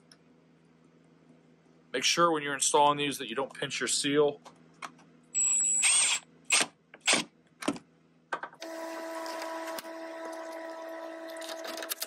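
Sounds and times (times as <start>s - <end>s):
cordless drill trigger bursts: 5.4s - 7.3s.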